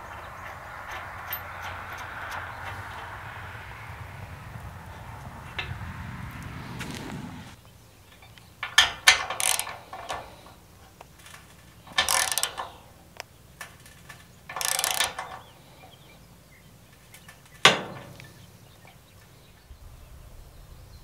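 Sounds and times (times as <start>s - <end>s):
ratcheting wrench clicking: 0.0s - 3.4s, 8.6s - 10.5s, 11.2s - 12.9s, 13.6s - 15.5s.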